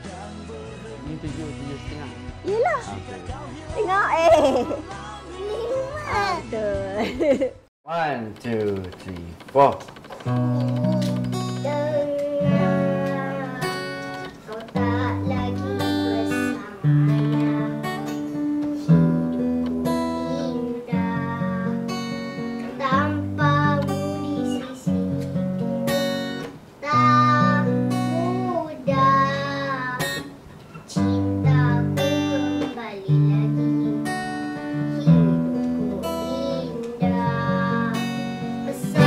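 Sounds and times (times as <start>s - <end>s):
acoustic guitar strumming chords: 10.1s - 39.0s.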